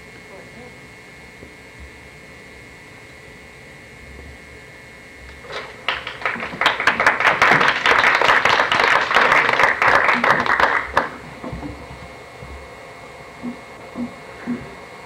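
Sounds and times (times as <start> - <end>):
audience applauding: 5.4 - 11.3.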